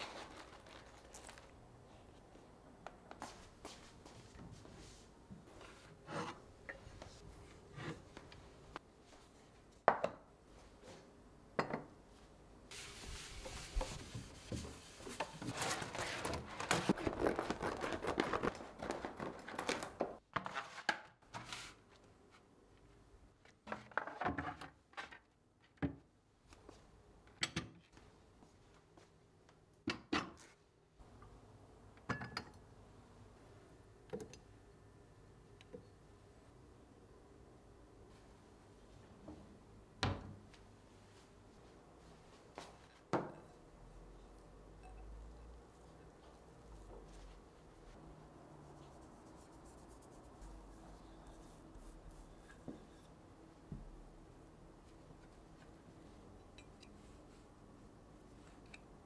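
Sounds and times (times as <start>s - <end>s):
shelf liner mat rustling: 12.7s - 22.5s.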